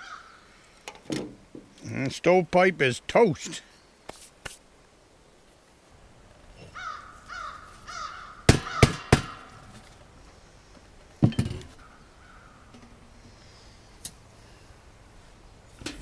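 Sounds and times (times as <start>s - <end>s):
crows cawing: 0.0s - 0.5s, 6.7s - 9.6s, 11.8s - 13.6s
hammer striking metal pipe: 8.5s - 9.6s.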